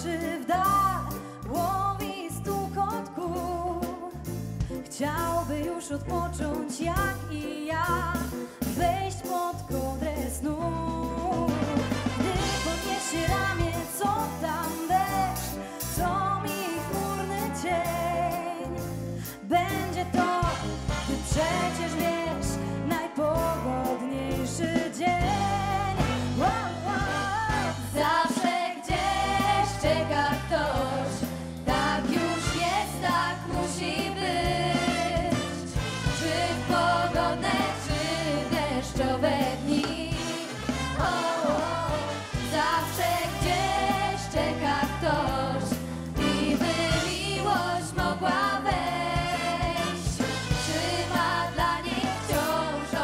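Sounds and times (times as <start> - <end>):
women singing a pop song: 0.0 - 53.0
wind orchestra with brass: 11.4 - 18.9, 20.1 - 48.1, 49.0 - 53.0.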